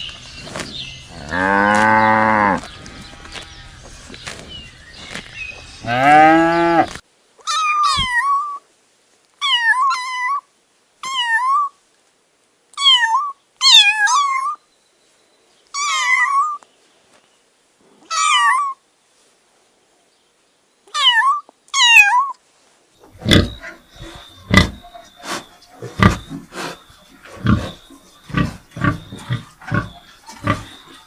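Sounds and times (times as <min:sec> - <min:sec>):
cow mooing: 0:01.1 - 0:03.6, 0:05.8 - 0:07.0
cat meowing: 0:20.9 - 0:22.3.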